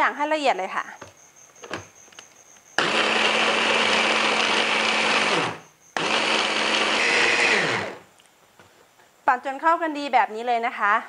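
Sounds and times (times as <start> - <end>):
electric chopper motor whirring: 2.8 - 8.0.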